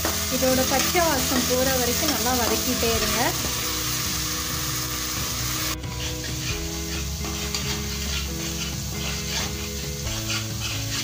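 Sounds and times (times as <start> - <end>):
paste sizzling in hot oil: 0.0 - 11.0
spoon scraping and stirring: 5.8 - 11.0.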